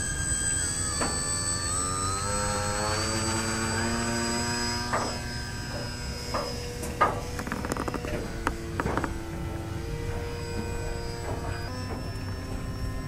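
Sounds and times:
electric motor and propeller whining: 0.0 - 13.0.

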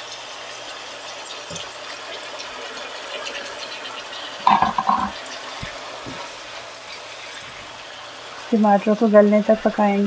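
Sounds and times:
sauce simmering and sizzling: 0.0 - 10.0
pan clatter: 4.5 - 5.2.

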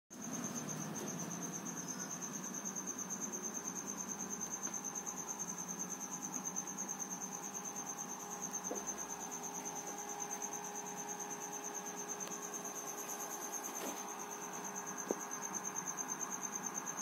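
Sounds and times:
cricket chirping: 0.2 - 17.0.

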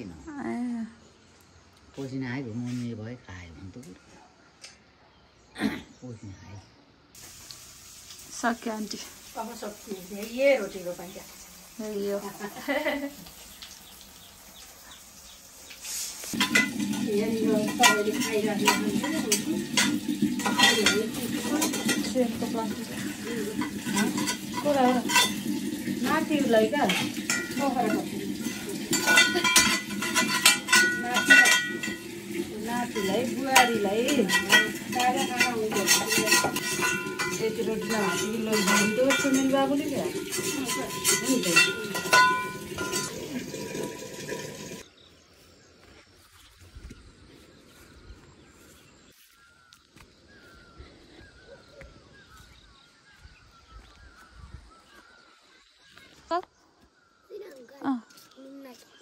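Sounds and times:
faint bird chirping: 0.0 - 7.2, 13.3 - 16.2, 44.8 - 59.0
metal pots and utensils clinking: 16.2 - 44.8
footsteps on grass: 45.1 - 56.3.

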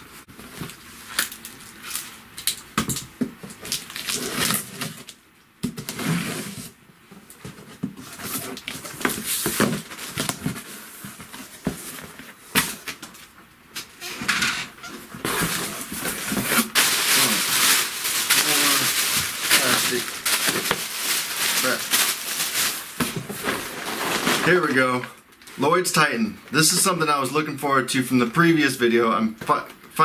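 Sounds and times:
packing tape tearing: 3.5 - 5.2, 15.2 - 22.9
cardboard flaps scraping and rustling: 3.9 - 13.3, 14.9 - 25.1.

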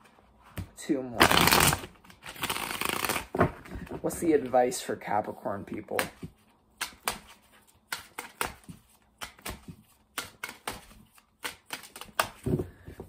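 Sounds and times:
cards being shuffled: 0.6 - 3.6, 5.9 - 12.6.

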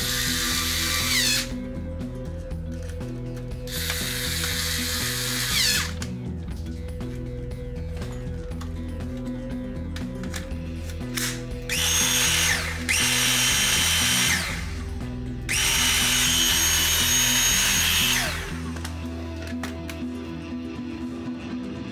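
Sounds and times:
vacuum motor whining: 0.0 - 1.5, 11.7 - 14.9, 15.5 - 19.0
background music: 0.0 - 21.9.

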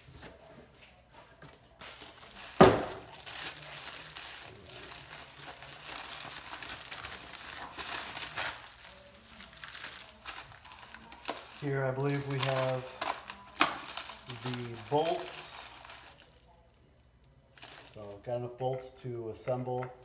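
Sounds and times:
plastic packaging crinkling: 1.7 - 16.7, 17.5 - 18.2.

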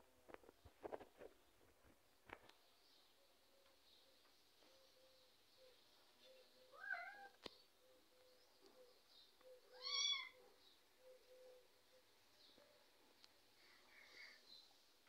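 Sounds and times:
kitten meowing: 9.7 - 10.4.

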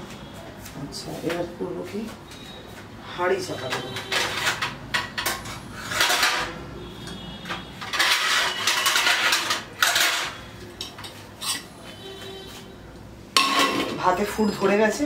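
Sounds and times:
metal dishes clattering: 3.6 - 6.7, 7.6 - 11.8, 13.4 - 14.4.

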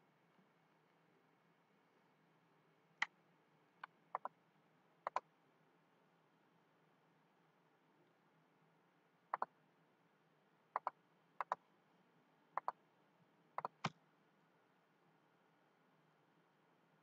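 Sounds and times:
faint background hiss: 0.0 - 17.0
mouse button double clicks: 10.8 - 11.6, 13.6 - 14.0.

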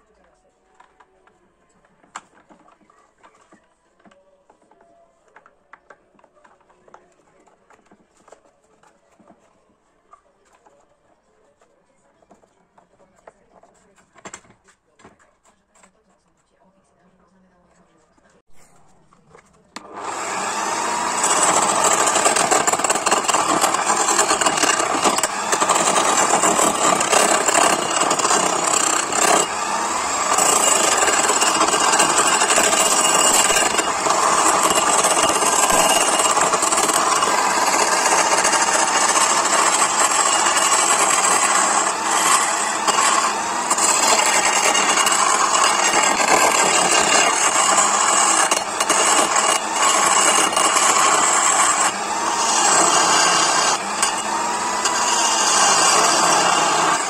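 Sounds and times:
wood lathe running: 19.8 - 57.0
chisel scraping wood on lathe: 20.0 - 57.0.

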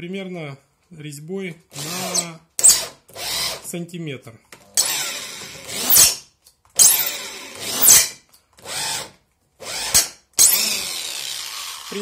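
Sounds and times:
cordless drill whining: 1.8 - 3.6, 4.8 - 6.2, 6.8 - 12.0.

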